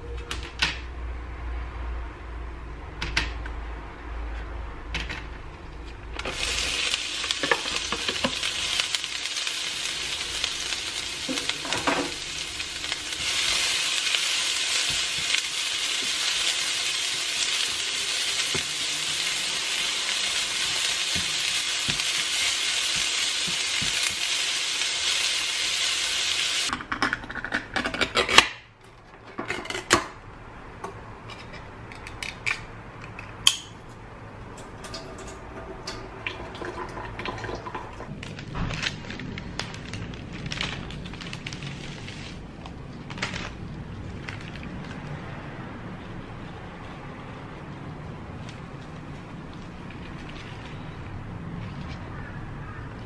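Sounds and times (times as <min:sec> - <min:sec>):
carrots sizzling in oil: 0:06.2 - 0:26.7.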